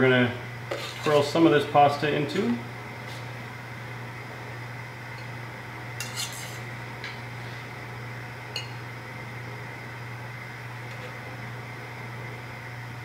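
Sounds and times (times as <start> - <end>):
steady low hum: 0.0 - 13.0
metal tongs clinking on steel bowl: 6.0 - 6.6.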